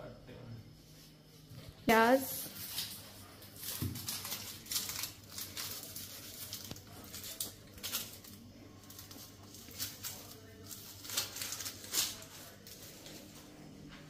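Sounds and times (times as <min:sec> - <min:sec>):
onion skin crackling and tearing: 0:03.6 - 0:12.8.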